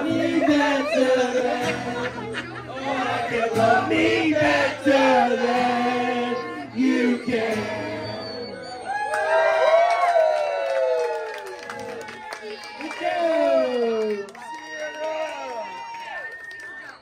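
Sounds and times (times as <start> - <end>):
live band with singing: 0.0 - 9.0.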